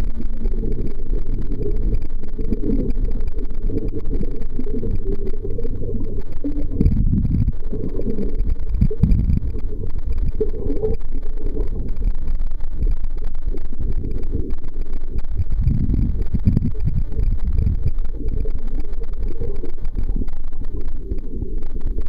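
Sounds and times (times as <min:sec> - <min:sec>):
muffled underwater rumble: 0:00.0 - 0:22.0.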